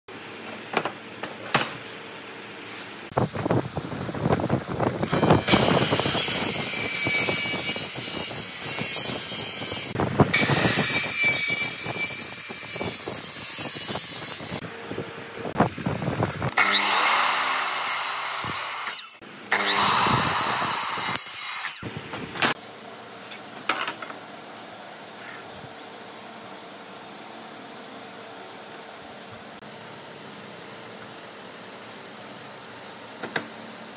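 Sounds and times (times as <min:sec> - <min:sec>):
circular saw cutting wood: 0:05.0 - 0:14.6, 0:16.5 - 0:21.9.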